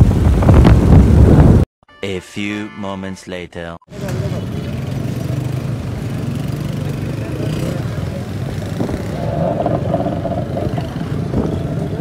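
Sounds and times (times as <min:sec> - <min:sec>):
motorbike engines rumbling: 0:03.9 - 0:12.0.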